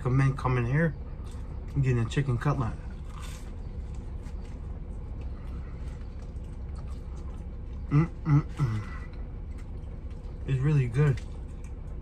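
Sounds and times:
person chewing crispy food: 1.0s - 12.0s.

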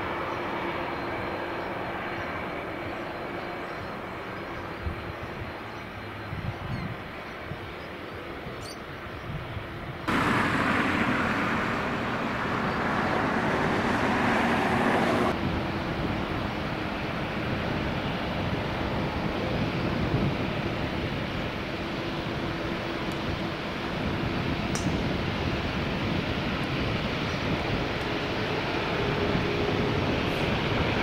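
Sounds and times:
jet engine rumble: 10.0s - 31.0s.

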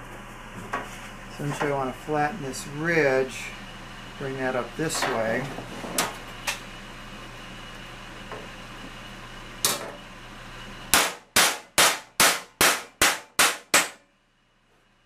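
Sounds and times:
hammer striking metal sheet: 10.9s - 14.0s.

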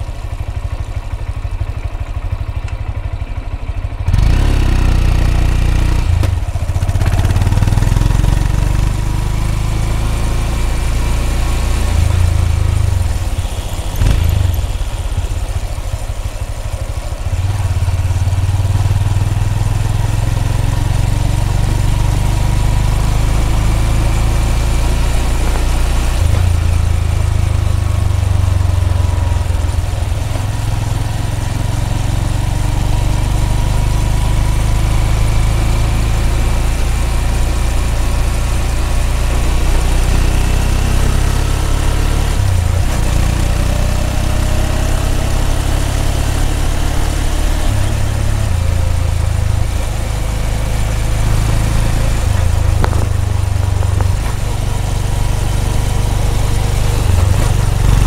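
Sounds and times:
motorcycle exhaust thrum: 10.5s - 30.9s, 47.7s - 58.0s.

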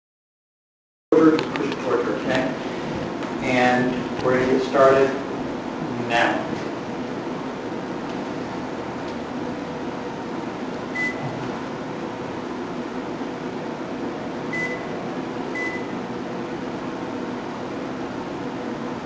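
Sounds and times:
short high electronic beeps: 14.6s - 14.9s.

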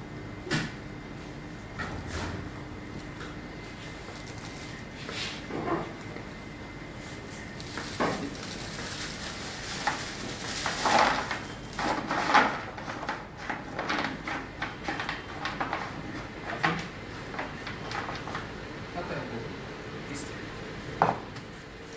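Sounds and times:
objects clattering on kitchen counter: 10.6s - 18.4s.

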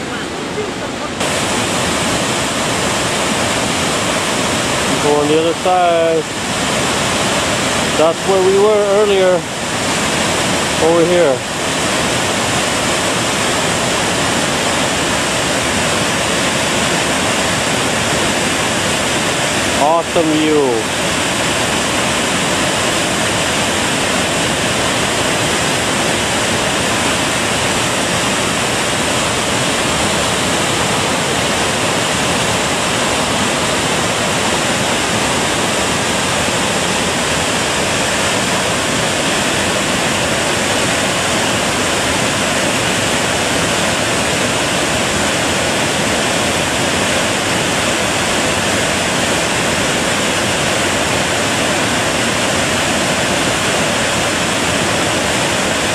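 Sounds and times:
waterfall rushing: 0.0s - 55.9s.

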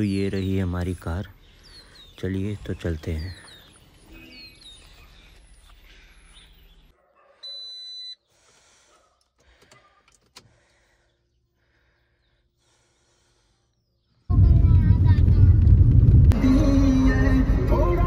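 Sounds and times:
electronic beep: 7.4s - 8.2s.

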